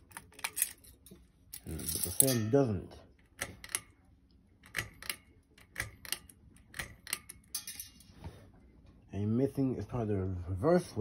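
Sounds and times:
pull-chain switch clicking: 3.2s - 4.0s, 4.6s - 7.7s.

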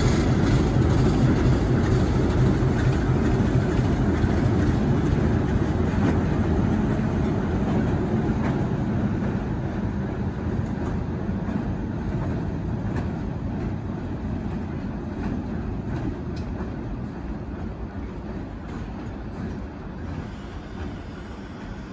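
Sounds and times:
locomotive engine rumble: 0.0s - 21.9s
wheels on rails: 0.0s - 21.9s
faint rail clicks: 10.6s - 21.9s.

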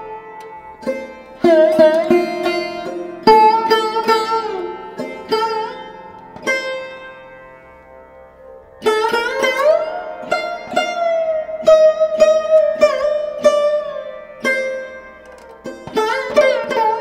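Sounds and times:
plucked string instrument music: 0.0s - 17.0s.

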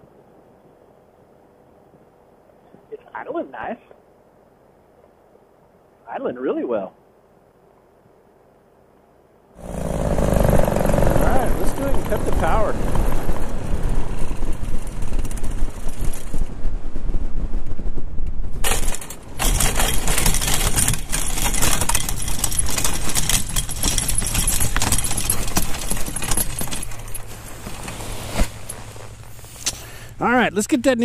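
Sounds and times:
wind buffeting microphone: 9.8s - 21.3s.

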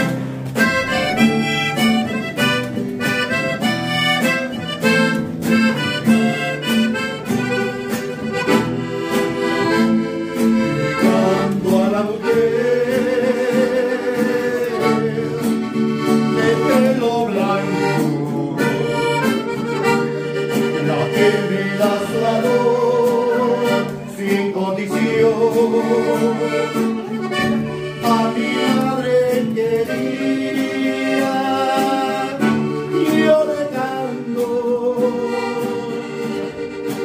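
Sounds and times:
accordion-led band music: 0.0s - 37.0s
person singing: 9.3s - 37.0s.

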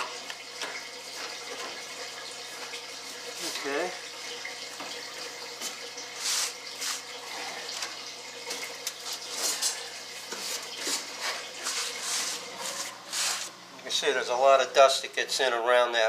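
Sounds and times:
bursts of hissing and rustling: 6.2s - 7.1s, 9.4s - 13.5s.

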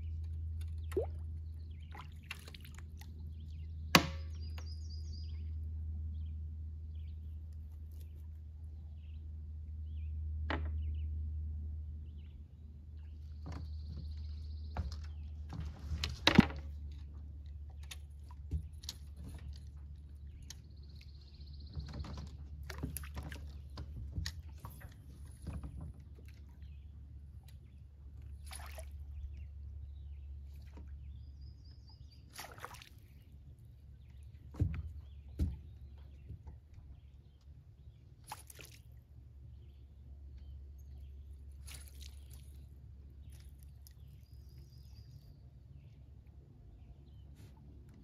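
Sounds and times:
water sloshing: 0.1s - 4.6s, 13.4s - 29.7s, 30.3s - 37.0s, 38.2s - 39.2s, 41.2s - 44.5s.

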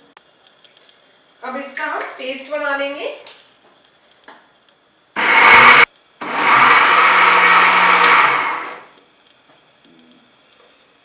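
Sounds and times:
mixer grinder grinding: 5.2s - 8.9s.

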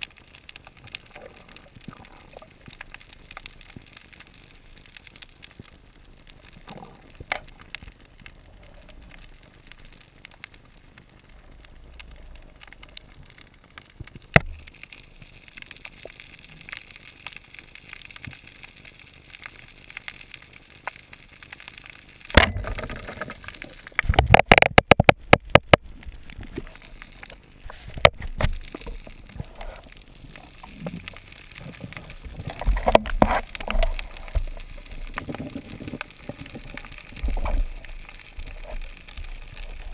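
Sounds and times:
underwater noise: 0.0s - 39.9s
sharp knocks and clicks: 24.0s - 25.8s.

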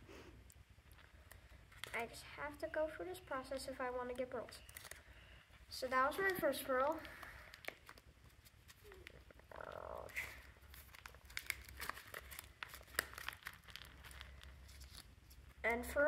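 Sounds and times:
plastic packaging crinkling: 0.8s - 2.1s, 4.1s - 5.1s, 5.8s - 15.6s.

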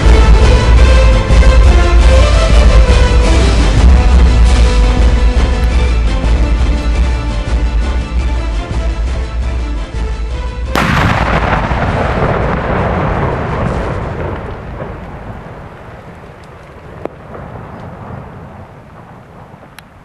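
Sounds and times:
large rumbling explosion: 0.0s - 5.1s, 10.7s - 20.0s
background music: 0.0s - 13.6s.

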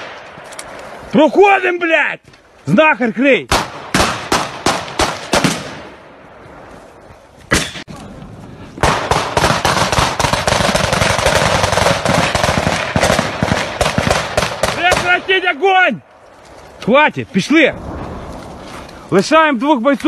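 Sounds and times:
single gunshots: 3.5s - 5.9s, 7.5s - 7.9s
rapid automatic gunfire: 8.8s - 15.1s.

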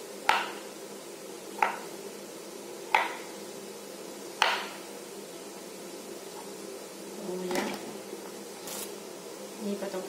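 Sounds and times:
knife chopping on cutting board: 0.2s - 0.6s, 1.6s - 1.8s, 2.9s - 3.2s, 4.4s - 4.8s.

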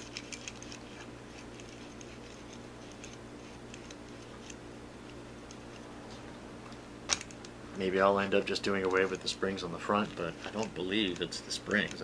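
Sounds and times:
steady low hum: 0.0s - 12.0s
light clicks and taps of small parts: 8.7s - 9.3s, 10.0s - 12.0s.

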